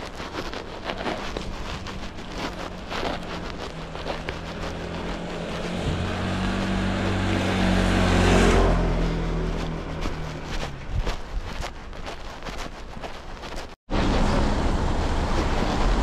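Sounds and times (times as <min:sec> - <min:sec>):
vehicle passing by: 0:01.4 - 0:11.0.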